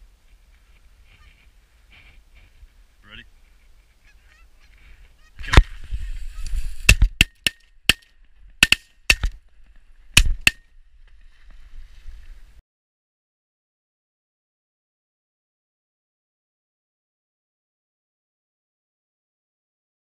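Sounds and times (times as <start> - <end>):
geese honking: 4.0 - 5.4.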